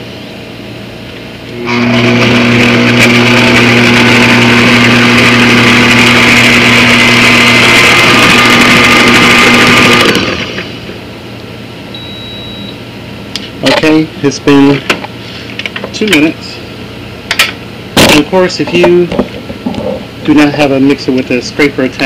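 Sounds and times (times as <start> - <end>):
stand mixer motor whining: 1.5 - 10.7.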